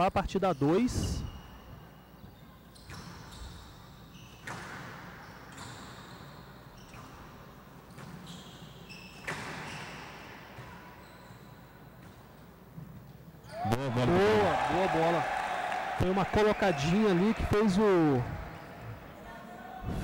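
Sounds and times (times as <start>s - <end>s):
shoes squeaking on court floor: 0.6s - 13.7s.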